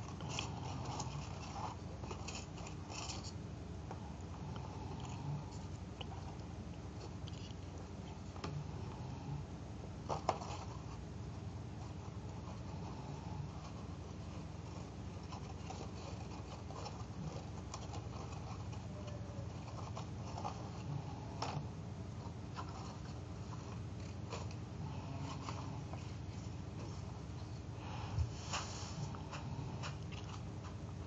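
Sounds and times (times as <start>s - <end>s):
paper rustling and crinkling: 0.0s - 3.4s
steady low background hum: 0.0s - 31.0s.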